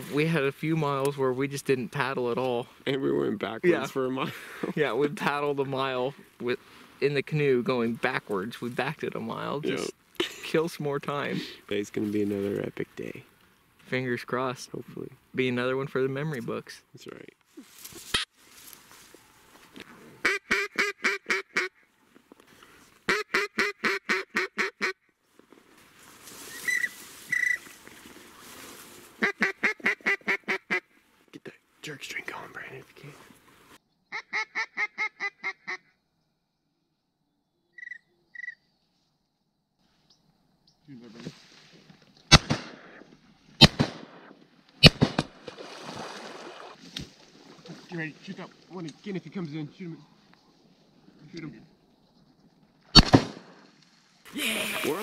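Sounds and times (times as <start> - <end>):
duck call quacks: 20.2 - 21.8, 23.1 - 25.0, 26.6 - 27.7, 29.2 - 30.9, 34.1 - 35.9
shotgun shots: 42.3 - 43.0, 43.6 - 45.5, 53.0 - 53.6.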